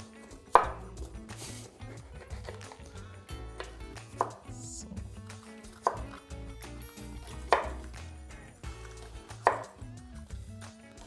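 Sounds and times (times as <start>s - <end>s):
soft background music: 0.0s - 11.0s
knife knocking on cutting board: 9.5s - 9.7s.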